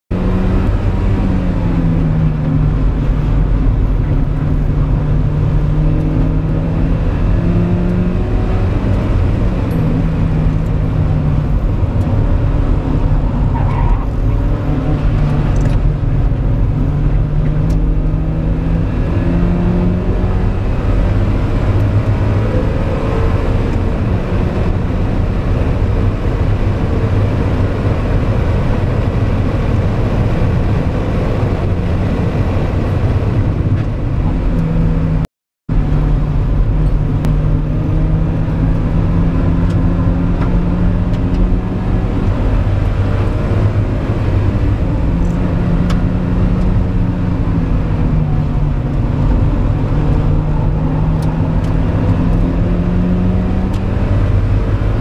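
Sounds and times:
car engine revving: 0.1s - 55.0s
road and tyre rumble: 0.1s - 55.0s.

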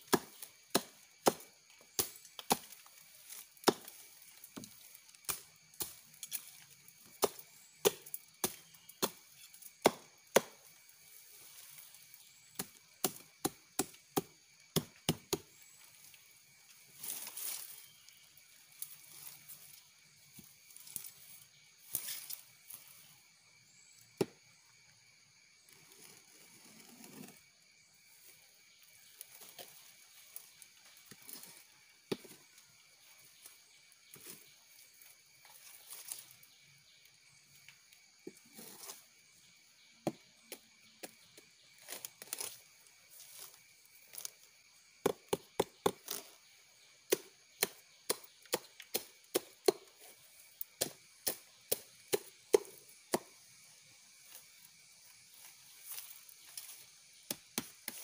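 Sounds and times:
machete chopping: 0.0s - 4.0s, 7.2s - 10.7s, 12.5s - 15.6s, 45.0s - 46.4s, 47.1s - 50.0s, 50.8s - 53.3s, 56.7s - 58.0s.

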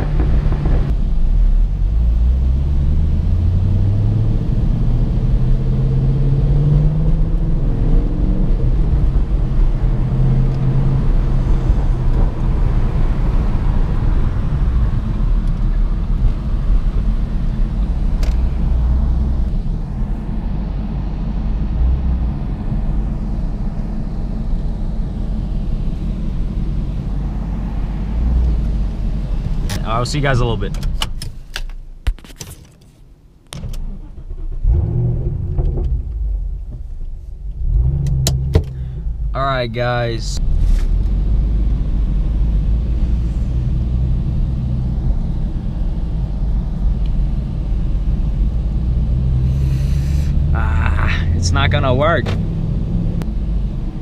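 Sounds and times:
car engine accelerating: 0.0s - 30.8s, 33.5s - 39.4s, 40.4s - 54.0s.

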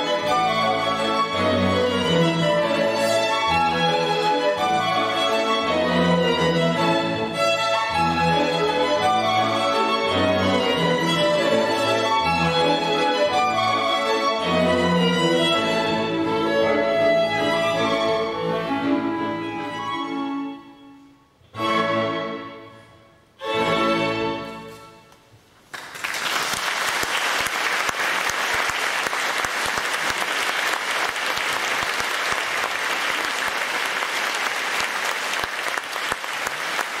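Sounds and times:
clarinet and string ensemble chords: 0.0s - 24.8s
audience applause: 25.7s - 37.0s.

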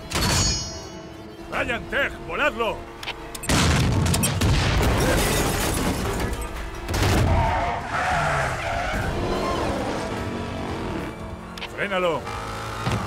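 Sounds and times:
film music score: 0.0s - 13.0s
tyres skidding: 5.0s - 13.0s
vehicles racing: 6.6s - 13.0s.

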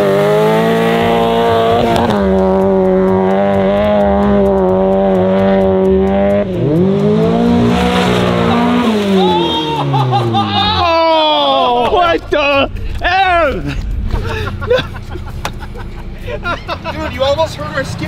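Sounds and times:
car engine revving hard: 0.0s - 11.4s.

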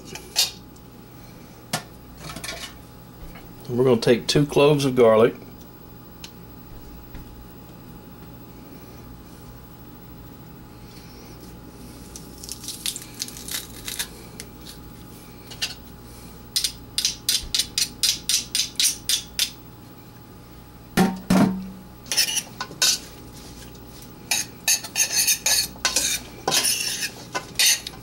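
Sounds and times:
knocks on steel pot: 21.0s - 21.8s.

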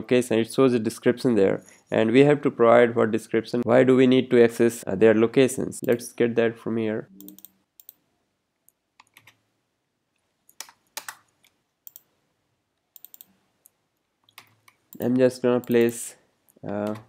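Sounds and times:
keyboard and mouse clicks: 7.2s - 8.0s, 8.6s - 9.4s, 10.2s - 12.1s, 12.9s - 17.0s.

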